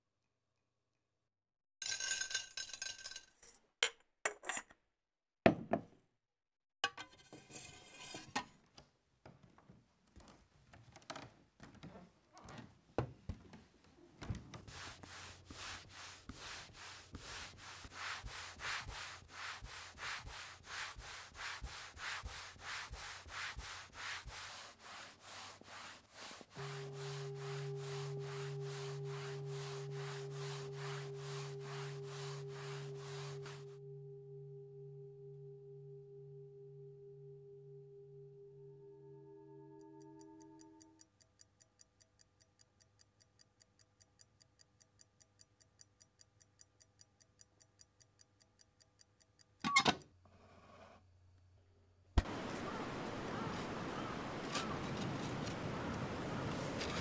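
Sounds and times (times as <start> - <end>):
plate rubbed on leather: 14.2 - 33.8
steady low drone: 26.6 - 40.1.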